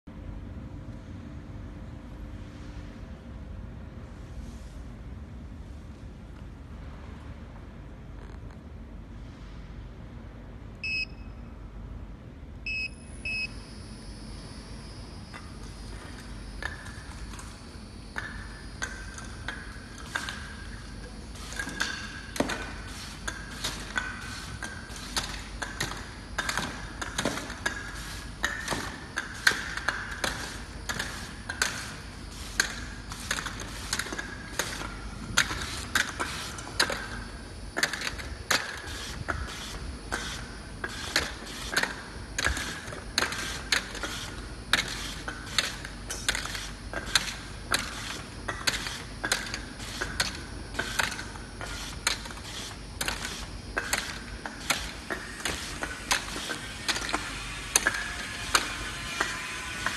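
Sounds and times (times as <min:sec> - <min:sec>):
machine motor whine and hum: 0:10.0 - 0:59.9.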